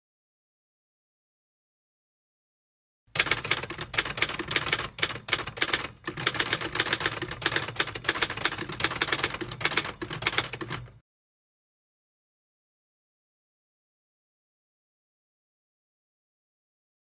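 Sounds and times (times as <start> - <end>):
typewriter key clacks: 3.2 - 10.9.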